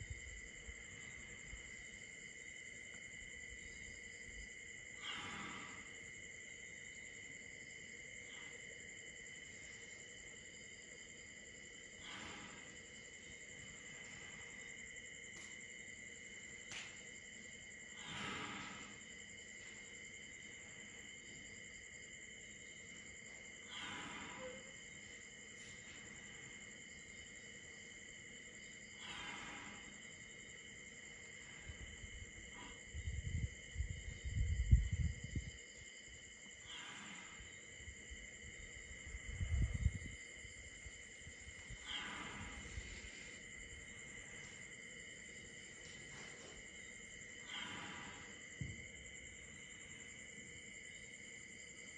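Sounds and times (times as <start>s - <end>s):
night insects trilling: 0.0s - 51.9s.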